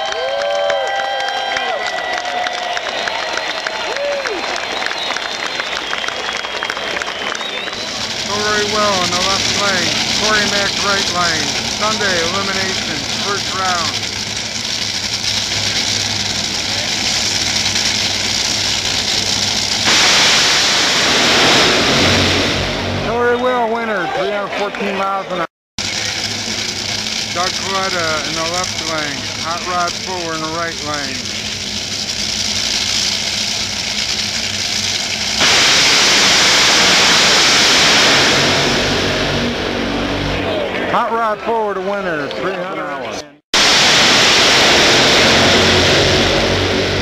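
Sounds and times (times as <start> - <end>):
dragster engines running: 0.1 - 47.0
harsh engine blast at launch: 5.0 - 23.6, 25.8 - 41.0, 43.6 - 47.0.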